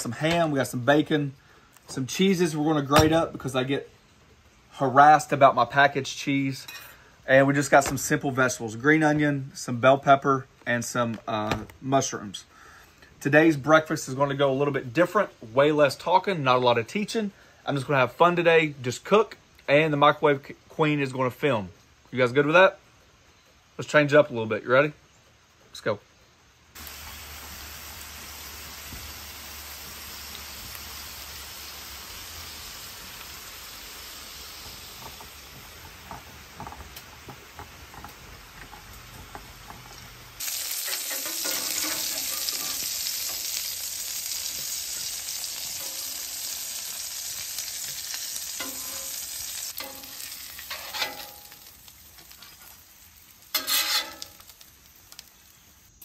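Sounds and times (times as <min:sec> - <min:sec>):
meat sizzling on a griddle: 0:26.8 - 0:56.0
metal spatula scraping griddle: 0:39.8 - 0:43.5, 0:48.5 - 0:52.8, 0:53.5 - 0:54.6.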